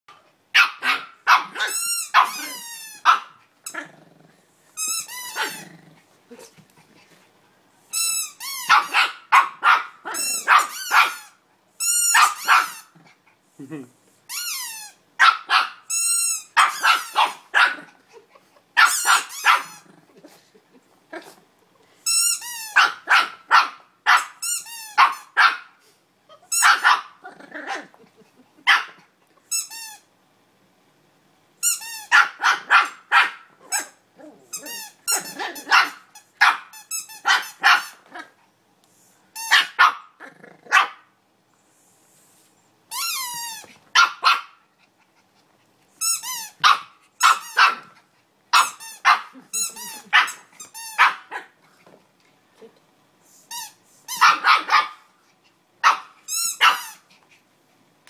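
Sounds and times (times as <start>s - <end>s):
puppy yapping: 0.6s - 3.4s, 5.2s - 5.7s, 8.6s - 11.4s, 12.0s - 12.9s, 15.2s - 15.8s, 16.6s - 17.9s, 18.8s - 19.9s, 22.7s - 24.4s, 26.3s - 27.9s, 32.1s - 34.0s, 34.6s - 38.3s, 39.5s - 41.0s, 44.0s - 44.6s, 46.4s - 48.0s, 48.6s - 51.6s, 54.1s - 55.1s, 55.8s - 57.0s
squeaky toy squeaking: 1.3s - 3.8s, 4.8s - 5.6s, 7.9s - 9.1s, 10.1s - 12.9s, 14.3s - 17.4s, 18.8s - 19.8s, 22.0s - 23.3s, 24.4s - 25.3s, 26.5s - 27.0s, 29.5s - 30.1s, 31.6s - 32.6s, 33.7s - 38.0s, 39.4s - 39.9s, 42.9s - 44.2s, 46.0s - 47.8s, 48.6s - 51.2s, 53.5s - 54.8s, 55.8s - 57.0s.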